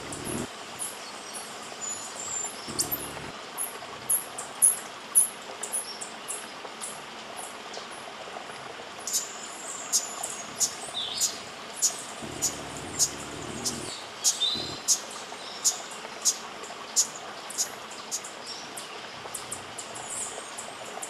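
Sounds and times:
background hiss: 0.0 - 3.5.

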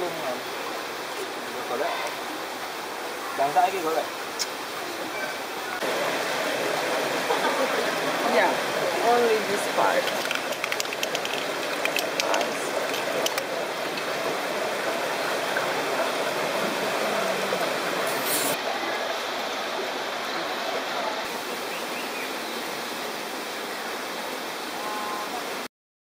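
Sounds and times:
flowing water rushing: 0.0 - 25.7
faint clicks: 10.0 - 14.1.

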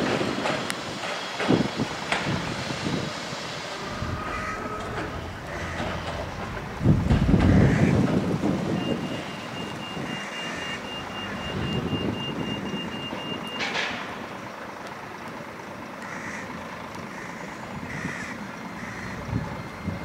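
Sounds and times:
electric tram rumbling: 0.0 - 20.0.

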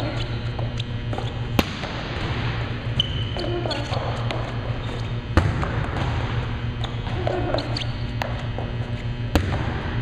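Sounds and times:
sneaker squeaks on court: 0.0 - 1.6, 2.8 - 6.1, 6.7 - 9.6
steady low hum: 0.0 - 10.0.

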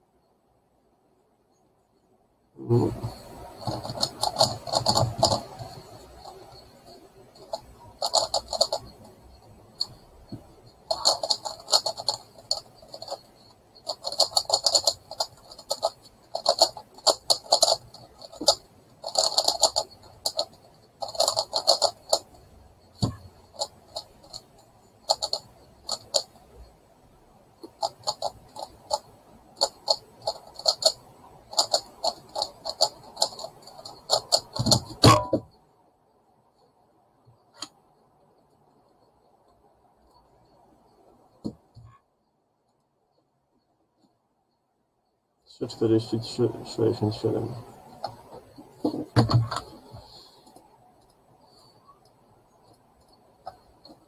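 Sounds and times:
plastic puzzle clicking: 2.8 - 6.5, 7.4 - 9.1, 9.8 - 22.4, 23.0 - 26.5, 27.6 - 35.4.

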